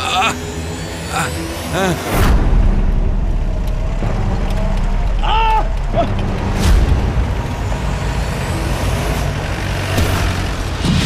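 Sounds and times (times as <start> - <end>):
vehicle engine running: 2.4 - 11.0.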